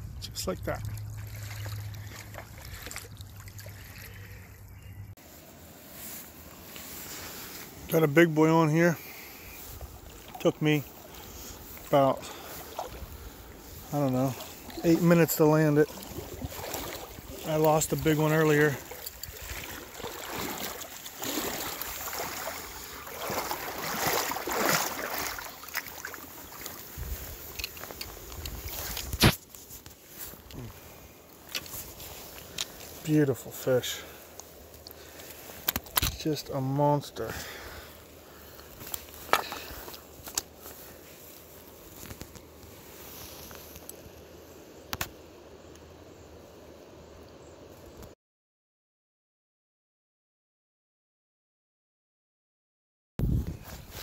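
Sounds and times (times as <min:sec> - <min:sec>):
wading through creek water: 0:00.1 - 0:44.9.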